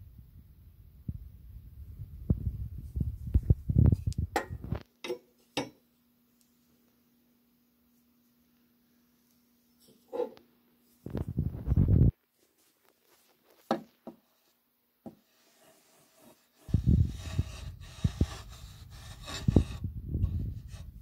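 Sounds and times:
handling noise near microphone: 2.2 - 5.6, 9.8 - 15.3.

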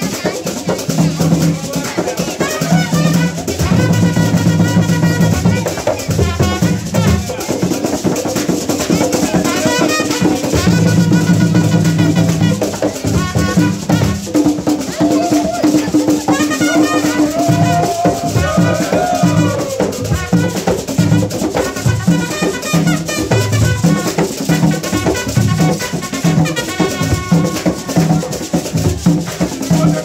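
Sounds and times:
drums beating: 0.0 - 30.0
voices singing: 14.9 - 20.4.

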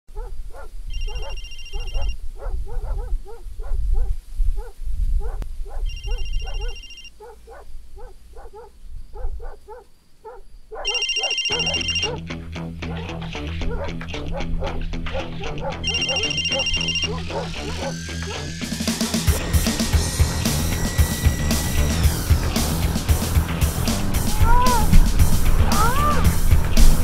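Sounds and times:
dog barking: 0.1 - 18.1
phone ringing: 0.9 - 2.2, 5.9 - 7.1, 10.9 - 12.2, 15.8 - 17.4
music: 11.5 - 27.0
low rumble: 19.4 - 27.0.

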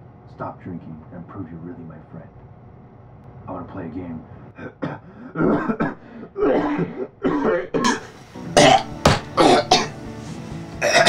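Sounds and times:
man clearing his throat: 4.6 - 10.0
man coughing hard: 4.6 - 10.0, 10.8 - 11.0.

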